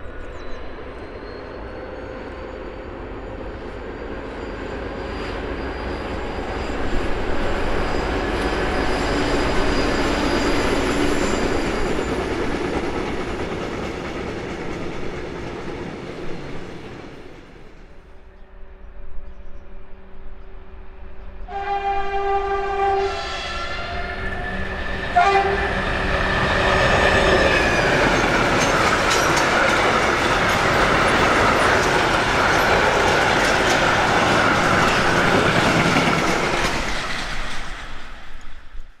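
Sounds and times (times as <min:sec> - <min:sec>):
freight train rumble: 0:00.0 - 0:39.0
locomotive horn blasts: 0:21.5 - 0:26.0
wheels clattering on rails: 0:27.4 - 0:38.6.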